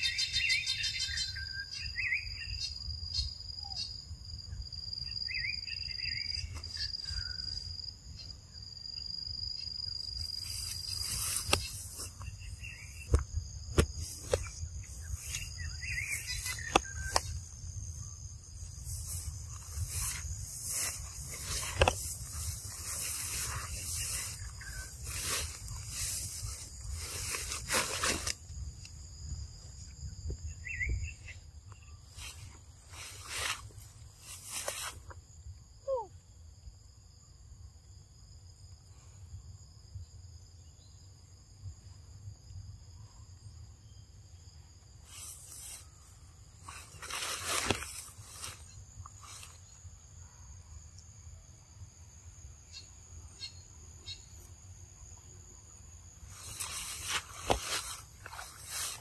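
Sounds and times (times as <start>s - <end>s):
bird chirps: 0.0s - 8.4s, 14.1s - 27.4s, 30.5s - 33.5s
insect trill: 0.0s - 59.0s
insect buzzing: 9.6s - 29.2s, 45.1s - 50.4s, 55.8s - 59.0s
rustling: 18.8s - 28.5s, 46.6s - 49.6s, 56.3s - 59.0s.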